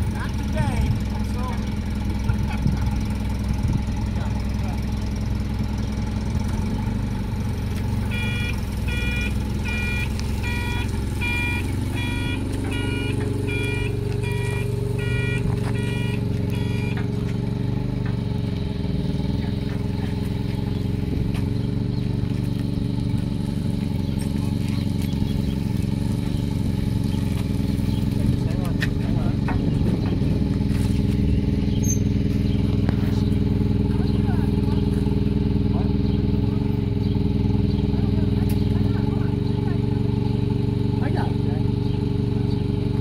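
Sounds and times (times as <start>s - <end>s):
forklift engine running: 0.0s - 43.0s
reverse alarm beeping: 8.1s - 17.0s.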